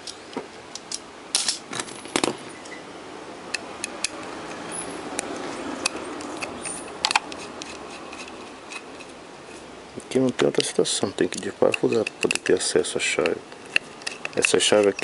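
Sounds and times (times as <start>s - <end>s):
screwdriver clicking and scraping: 3.8s - 9.6s, 10.3s - 15.0s.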